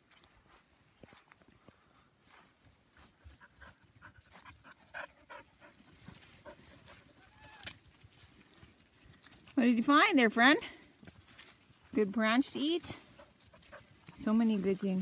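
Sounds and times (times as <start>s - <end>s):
puppies panting: 2.9s - 7.3s, 12.8s - 15.0s.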